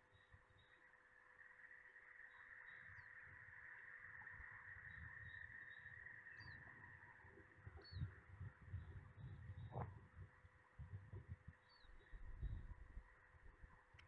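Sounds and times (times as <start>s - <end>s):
low rumble: 7.6s - 14.0s.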